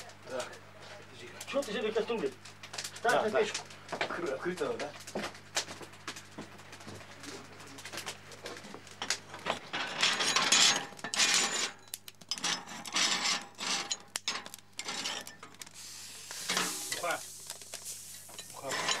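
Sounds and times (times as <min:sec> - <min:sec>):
iron hook scraping metal rings: 0:09.7 - 0:15.6, 0:18.3 - 0:19.0.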